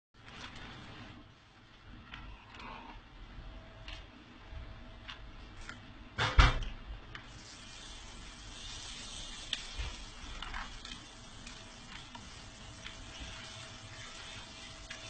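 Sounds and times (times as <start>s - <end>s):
paper pages rustling: 0.2s - 1.0s, 8.6s - 15.0s.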